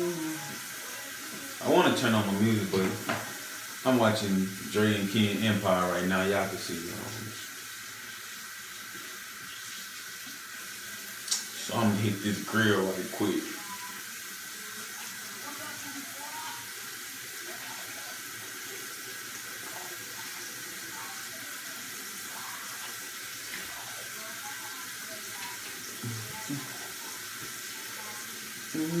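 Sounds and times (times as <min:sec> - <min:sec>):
tap running into sink: 0:02.6 - 0:03.4.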